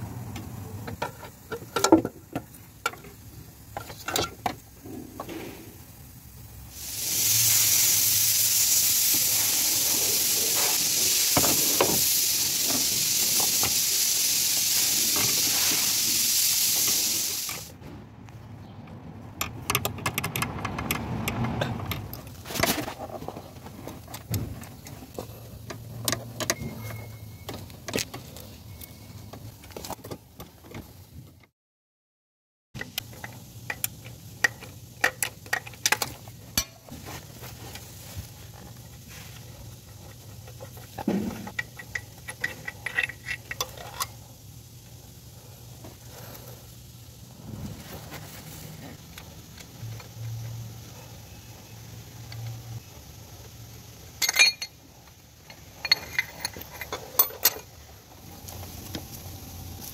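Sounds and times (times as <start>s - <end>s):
hand tools and metal parts clinking: 0.4s - 5.6s, 19.4s - 30.5s, 32.8s - 44.4s, 54.1s - 57.9s
compressed air spraying hiss: 6.7s - 17.7s.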